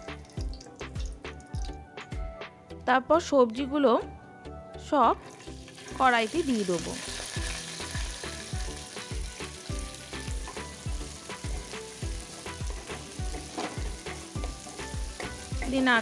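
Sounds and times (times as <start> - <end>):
music with steady beat: 0.0 - 2.6, 7.4 - 16.0
vegetables sizzling in oil: 5.2 - 16.0.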